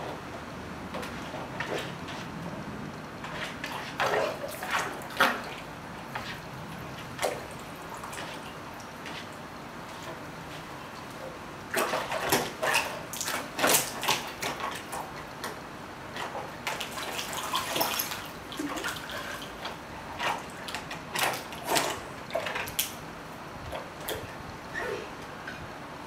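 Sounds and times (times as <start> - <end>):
dog paddling splashes: 3.2 - 15.3, 16.1 - 23.0.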